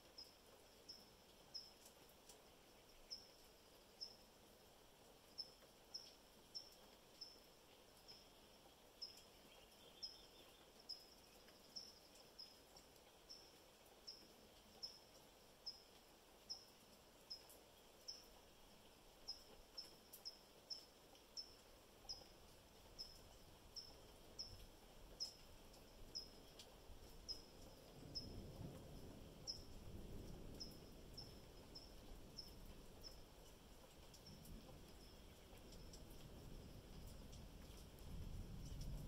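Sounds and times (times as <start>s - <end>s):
light rain hiss: 0.0s - 39.0s
faint high-pitched chirp: 2.8s - 4.3s, 5.4s - 18.4s, 19.3s - 25.4s, 26.0s - 28.5s, 29.4s - 33.3s.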